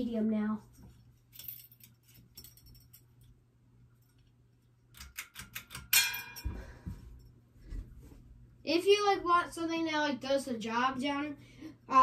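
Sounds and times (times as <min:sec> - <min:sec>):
chain rattling against glass globe: 0:01.3 - 0:03.1.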